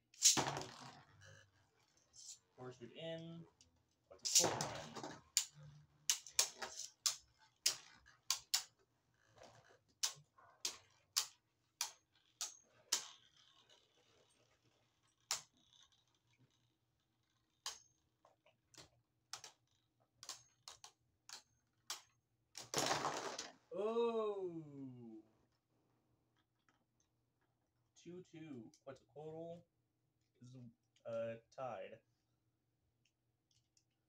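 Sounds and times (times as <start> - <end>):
spinning tops clacking: 0.2 - 0.6.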